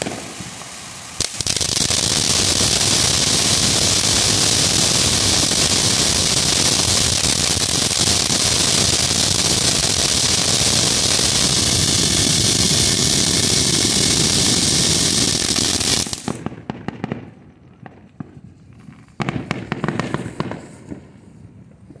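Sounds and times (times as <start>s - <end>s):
firework fountain hissing: 0.0s - 16.4s
firework crackles and pops: 0.0s - 22.0s.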